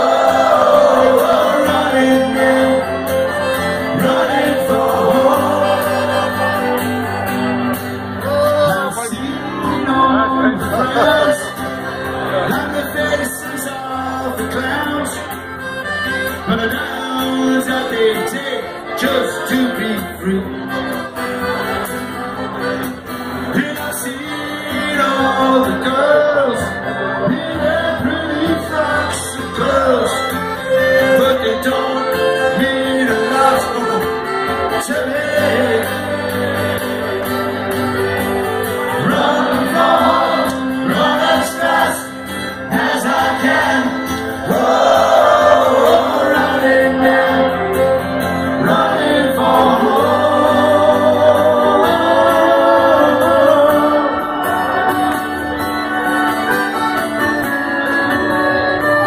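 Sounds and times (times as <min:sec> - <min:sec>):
lead vocal singing: 0:00.0 - 0:07.0, 0:23.5 - 0:37.5, 0:38.7 - 0:54.9
live band playing: 0:00.0 - 0:59.0.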